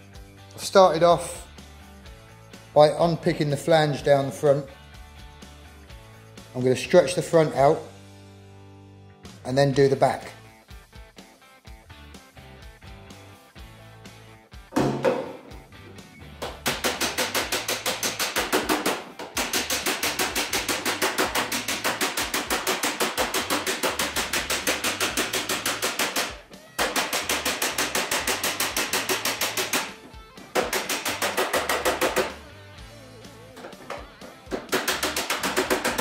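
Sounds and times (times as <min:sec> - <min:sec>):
hammer striking steel door: 0:14.8 - 0:15.5.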